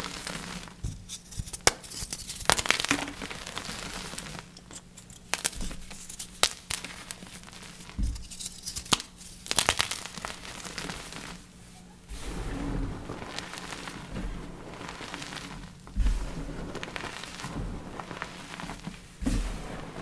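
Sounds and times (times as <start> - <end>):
chalk blocks crunching: 0.8 - 11.4.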